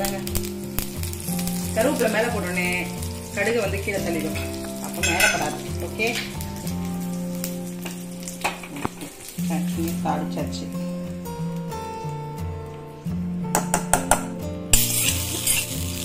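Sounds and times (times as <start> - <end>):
leaves sizzling in hot oil: 0.0 - 12.3, 14.7 - 16.0.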